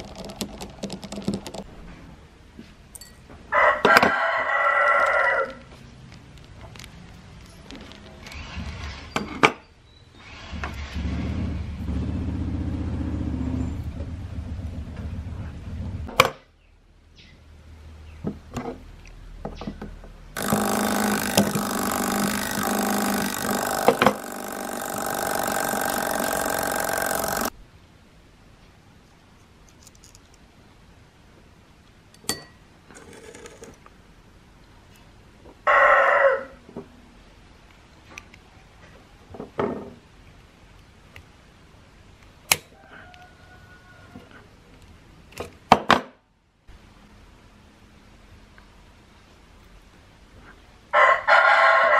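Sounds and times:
machine humming: 20.4 - 27.6.

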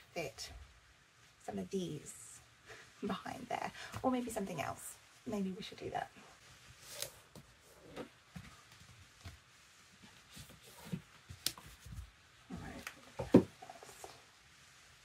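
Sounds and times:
books handled on a shelf: 6.4 - 14.4.

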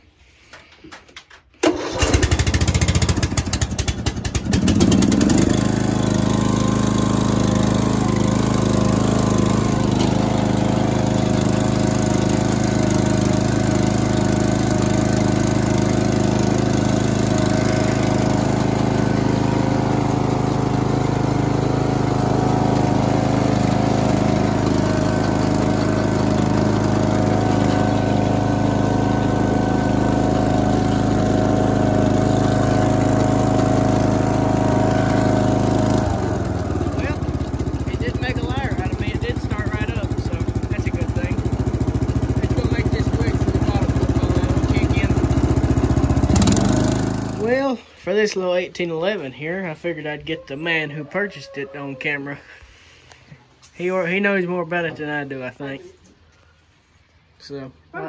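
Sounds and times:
lawn tractor engine cranking: 0.4 - 47.7
lawn tractor engine running: 0.5 - 49.2.

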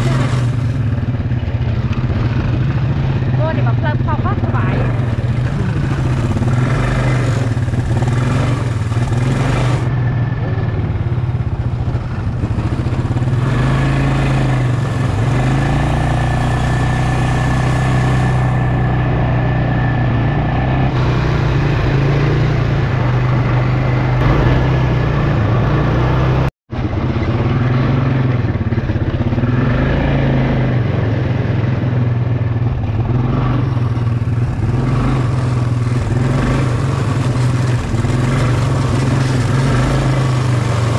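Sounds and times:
quad bike engine running: 0.0 - 40.9.

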